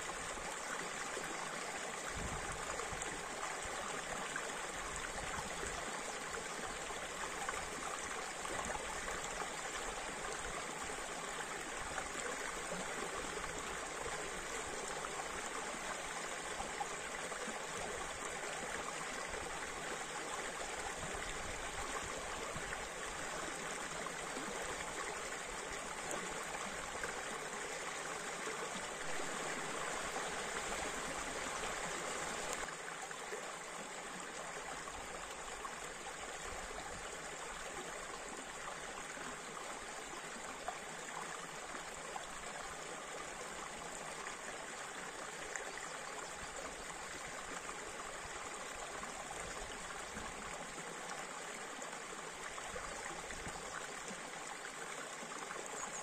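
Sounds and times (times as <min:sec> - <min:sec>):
stream rushing over rocks: 0:00.0 - 0:37.3.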